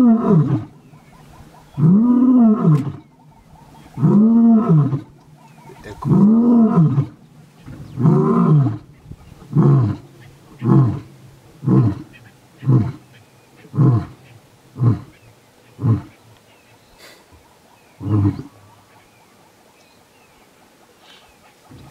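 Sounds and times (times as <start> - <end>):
lion roaring and grunting: 0.0 - 0.8, 1.7 - 3.1, 3.9 - 7.2, 7.8 - 13.0, 15.8 - 16.1, 18.0 - 18.5.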